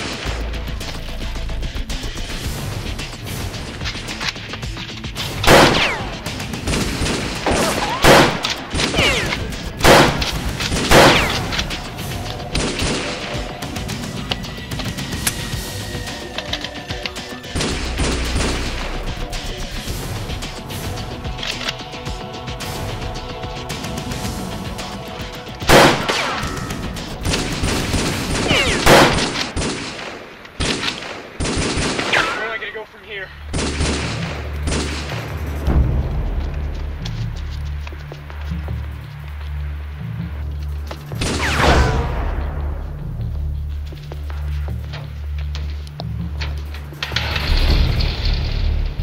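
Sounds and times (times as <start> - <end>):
gunfire sound effects: 0.0 - 0.5, 5.2 - 11.9, 12.6 - 13.8, 17.5 - 19.1, 25.7 - 32.8, 33.5 - 35.8, 41.2 - 43.0
gunshots: 0.0 - 1.0, 2.1 - 21.8, 25.5 - 36.5, 41.2 - 43.1
background music: 0.0 - 49.0
weaker cracks: 3.1 - 19.8.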